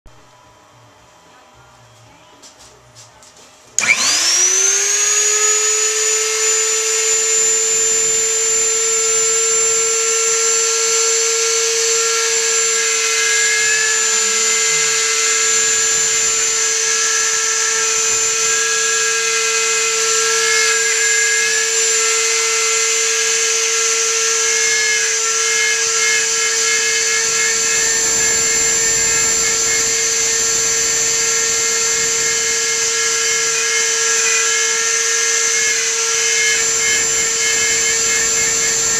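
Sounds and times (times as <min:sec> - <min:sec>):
bit carving into wood: 0:03.8 - 0:38.9
router spindle whine: 0:03.8 - 0:38.9.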